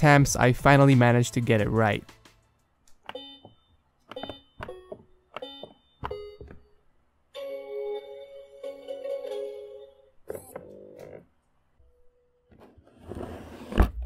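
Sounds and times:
button clicks: 0:02.9 - 0:06.7.

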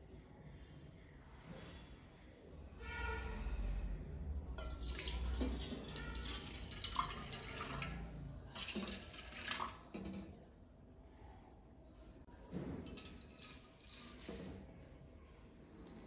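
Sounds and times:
water pouring into a metal pot: 0:04.6 - 0:10.5, 0:12.8 - 0:14.7.

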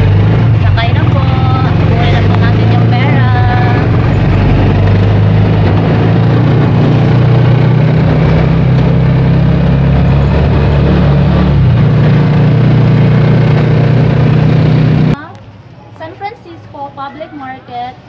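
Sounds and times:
motorcycle engine running: 0:00.0 - 0:15.2
road and wind noise: 0:00.0 - 0:15.6.

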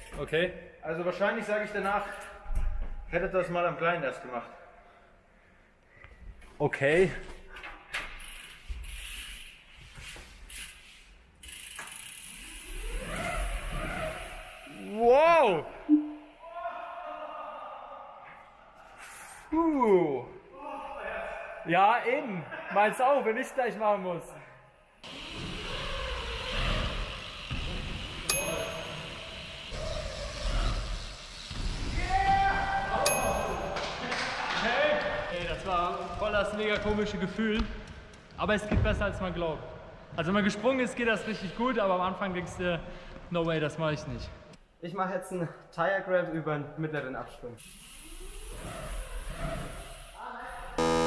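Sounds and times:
bike rolling in a large hall: 0:00.0 - 0:51.0
bicycle freehub ticking: 0:08.1 - 0:09.7, 0:11.4 - 0:15.0, 0:25.0 - 0:31.7, 0:47.6 - 0:50.2
sharp metallic ping: 0:28.3 - 0:29.0.

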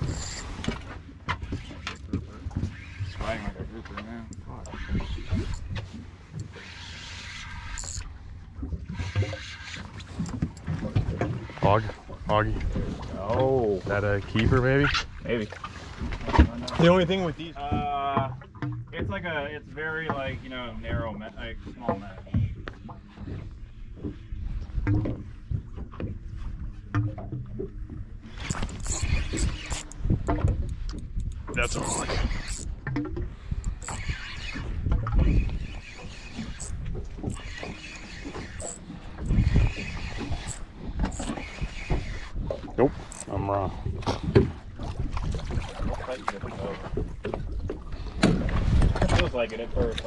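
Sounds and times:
fishing reel whirring: 0:00.0 - 0:00.7, 0:04.4 - 0:08.2, 0:28.4 - 0:32.8, 0:33.6 - 0:43.5
water around a boat: 0:00.0 - 0:50.0
wind: 0:00.0 - 0:50.0
low rumble and thumps: 0:07.5 - 0:50.0.

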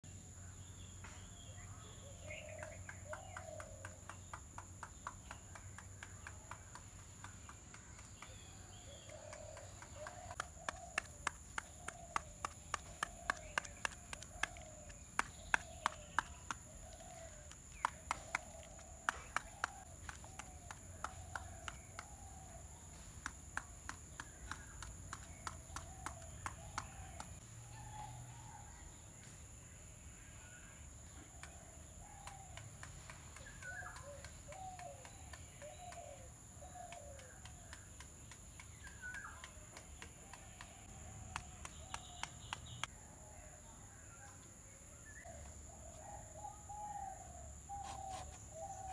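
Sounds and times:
birds calling: 0:01.0 - 0:23.2, 0:31.1 - 0:42.9.

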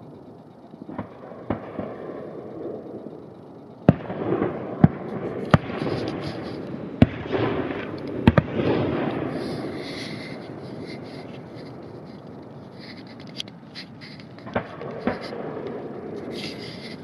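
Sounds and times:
noisy rumble: 0:00.0 - 0:17.0
firework bangs: 0:03.9 - 0:11.9, 0:13.9 - 0:17.0.

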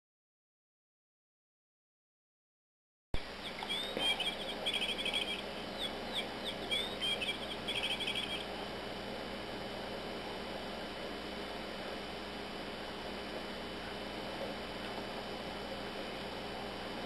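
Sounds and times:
electronic bird chirps and trill: 0:03.2 - 0:08.6.

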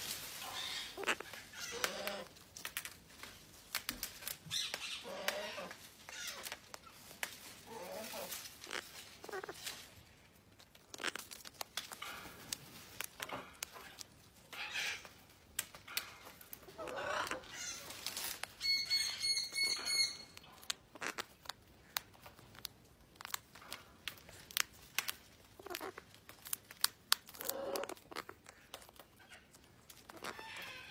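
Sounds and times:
beak cracking nuts: 0:01.0 - 0:07.4, 0:10.4 - 0:30.9
soft bird sounds: 0:04.1 - 0:09.9, 0:10.9 - 0:21.5.

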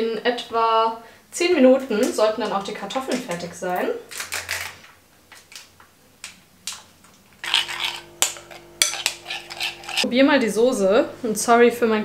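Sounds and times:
refrigerator humming: 0:07.2 - 0:12.0
spoon scraping ceramic bowl: 0:07.4 - 0:10.1.

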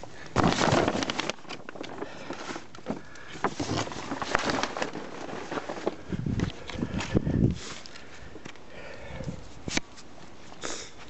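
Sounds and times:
plastic tarp crinkling: 0:00.0 - 0:08.0.

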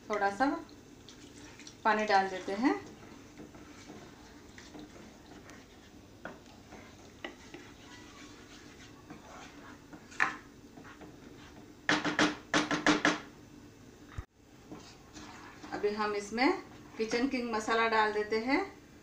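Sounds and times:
spatula scraping pan: 0:01.4 - 0:11.8, 0:14.7 - 0:17.8
spatula knocking on pan: 0:06.2 - 0:08.1, 0:11.8 - 0:13.3.

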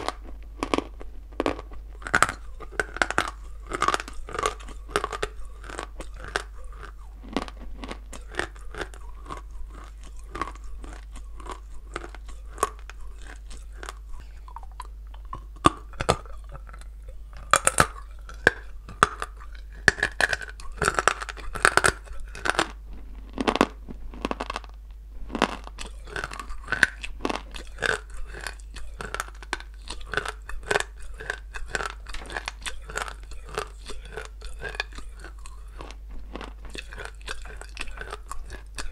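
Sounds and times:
person chewing crunchy clay: 0:00.0 - 0:38.9.

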